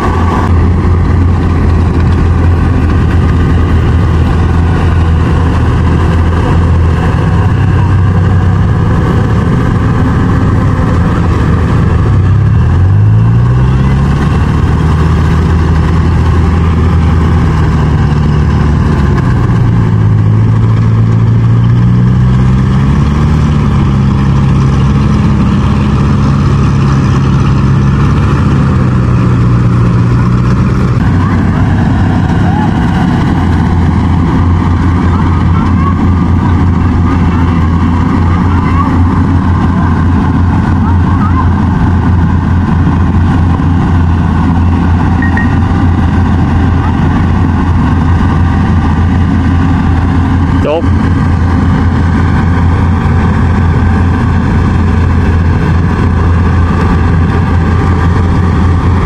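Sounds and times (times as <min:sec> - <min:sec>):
combine harvester diesel engine droning: 0:00.0 - 0:59.0.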